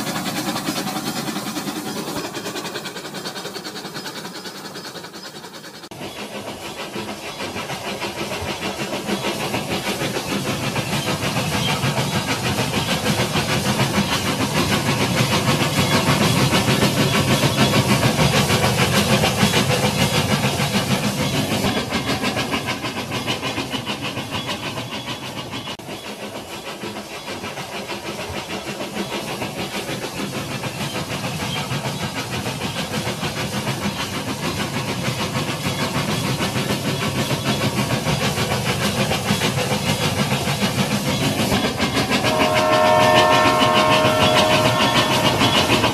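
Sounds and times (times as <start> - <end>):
toy train whirring and clattering: 0.0 - 45.9
multi-tone train whistle: 41.8 - 45.9.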